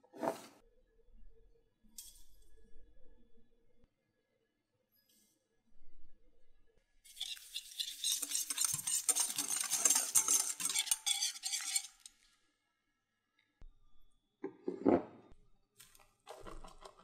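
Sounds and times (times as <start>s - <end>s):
whisk clicking against glass bowl: 7.2s - 12.1s.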